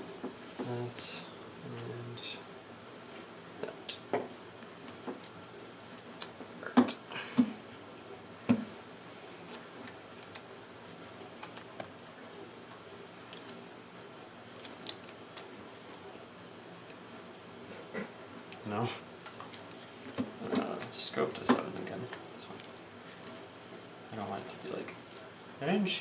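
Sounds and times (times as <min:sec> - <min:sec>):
playing cards being shuffled: 0:09.4 - 0:10.6, 0:11.3 - 0:13.6, 0:14.4 - 0:17.2.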